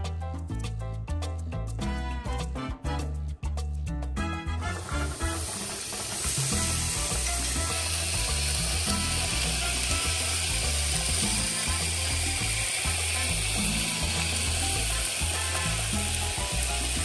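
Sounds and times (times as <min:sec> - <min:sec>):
background music with bass line: 0:00.0 - 0:17.0
fish sizzling in oil: 0:04.6 - 0:17.0.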